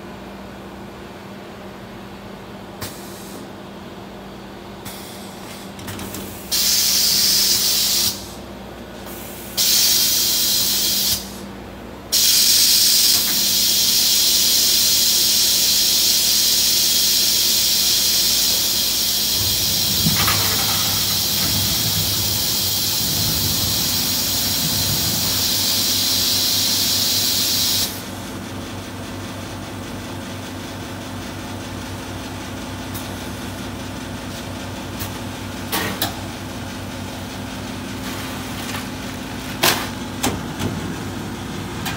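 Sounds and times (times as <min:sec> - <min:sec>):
ice machine hiss: 0:06.3 - 0:08.4, 0:09.0 - 0:11.5, 0:12.1 - 0:28.1
low machine hum: 0:18.5 - 0:26.3, 0:28.0 - 0:41.9
deeper motor hum: 0:19.2 - 0:25.7, 0:33.8 - 0:41.9.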